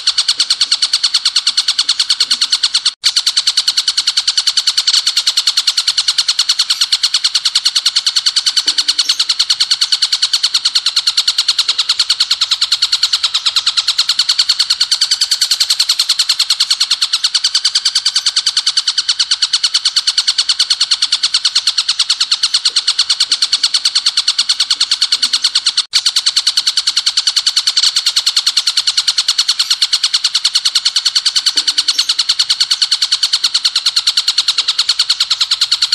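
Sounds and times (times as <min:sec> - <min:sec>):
bird chirping rapidly: 0:00.0 - 0:35.9.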